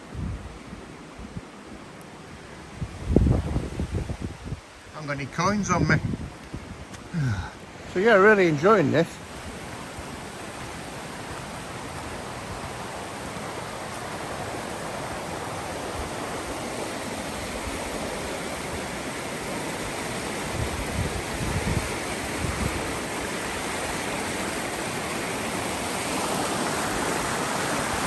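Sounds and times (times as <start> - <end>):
river rushing over rocks: 7.0 - 28.0.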